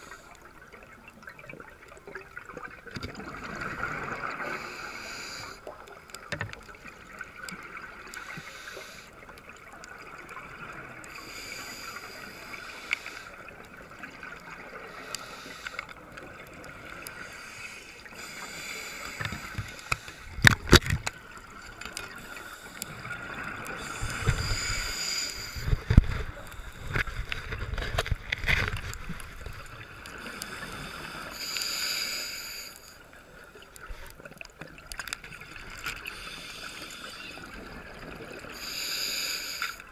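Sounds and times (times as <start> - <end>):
steady water noise: 0.0 - 39.9
diver breathing through regulator: 4.4 - 5.7, 8.2 - 9.1, 11.1 - 13.4, 14.8 - 16.0, 17.1 - 20.8, 22.1 - 27.7, 30.1 - 33.0, 36.0 - 37.4, 38.6 - 39.9.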